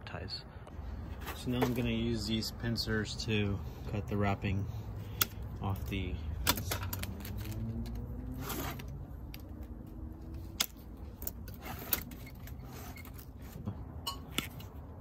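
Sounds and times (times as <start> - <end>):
pincers snipping: 10.4 - 13.2
wire mesh rattling and scraping: 10.4 - 14.8.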